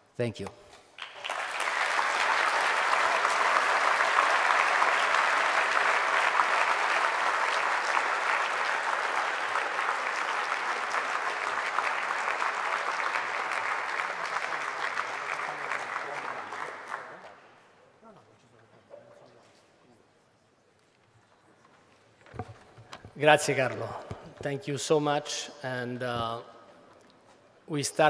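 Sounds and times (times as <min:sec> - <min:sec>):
audience applauding: 0:01.0 - 0:17.4.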